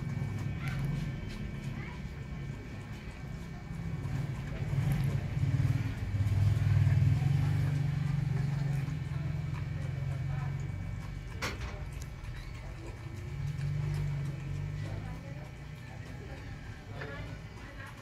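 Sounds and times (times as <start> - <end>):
vehicle engine running: 0.0 - 11.4
dog crunching food from steel bowl: 0.1 - 18.0.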